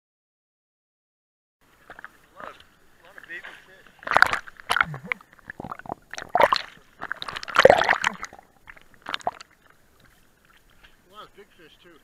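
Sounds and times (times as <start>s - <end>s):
seawater splashing and sloshing: 1.7s - 11.2s.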